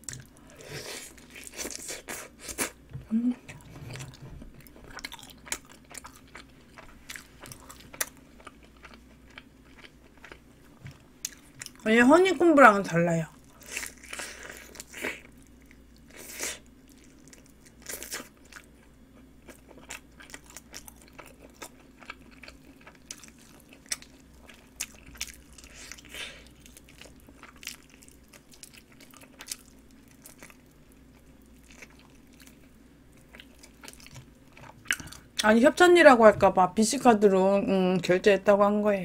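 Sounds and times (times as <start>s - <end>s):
chicken crunching as it is chewed: 13.4s - 35.2s.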